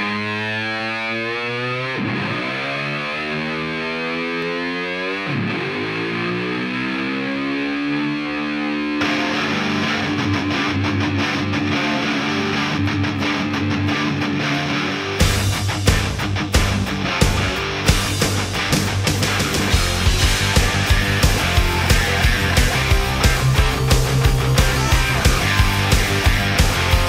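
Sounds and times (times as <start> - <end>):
distorted electric guitar: 0.0 - 27.0
heavy rock band with drums: 9.0 - 27.0.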